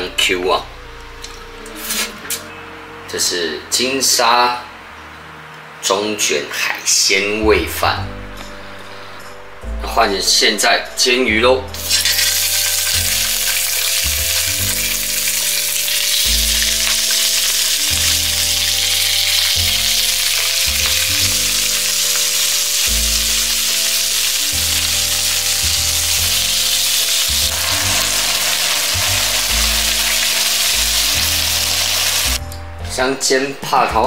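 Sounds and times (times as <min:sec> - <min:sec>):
background music with bass: 0:00.0 - 0:05.9, 0:07.1 - 0:34.0
fish sizzling in oil: 0:11.8 - 0:32.4.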